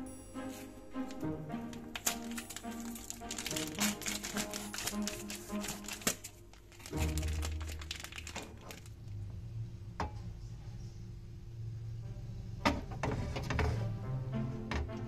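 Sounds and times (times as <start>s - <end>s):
low steady hum: 0.0s - 13.6s
crackles: 1.7s - 9.2s.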